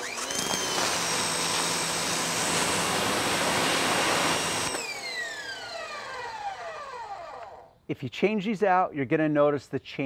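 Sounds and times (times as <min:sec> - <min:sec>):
pressure washer motor whine: 0:00.0 - 0:07.6.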